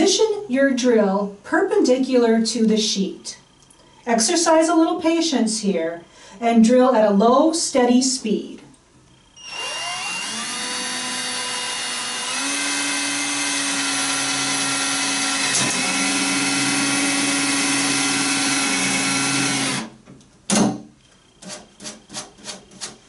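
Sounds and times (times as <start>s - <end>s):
cordless drill boring plastic: 9.4s - 19.9s.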